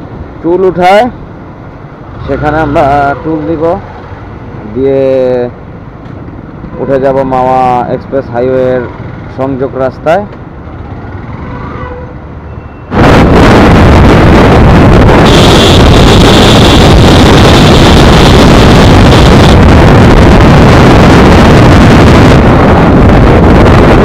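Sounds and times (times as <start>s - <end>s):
faint traffic: 0.0s - 13.2s
wind buffeting microphone: 12.9s - 24.0s.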